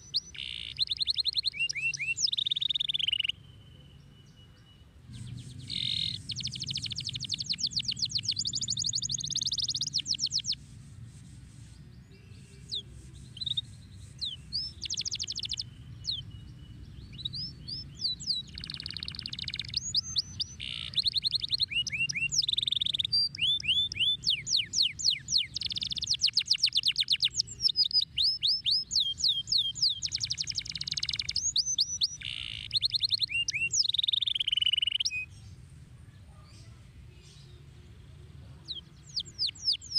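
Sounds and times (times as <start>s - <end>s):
canary singing trills: 0.0s - 35.5s, 36.4s - 39.9s
steady low hum: 4.9s - 18.5s.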